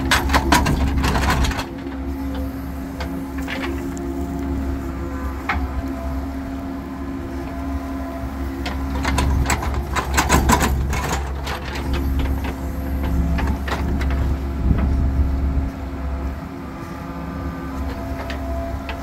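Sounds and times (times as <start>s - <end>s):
excavator bucket clanking: 0.0s - 4.2s, 8.5s - 15.0s
excavator diesel engine running: 0.0s - 19.0s.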